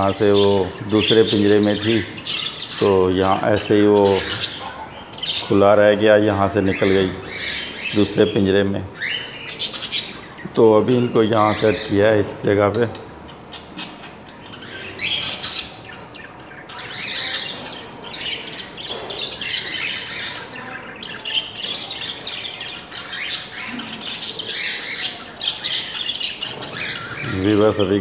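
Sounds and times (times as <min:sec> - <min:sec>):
budgerigars chirping: 0:00.0 - 0:28.0.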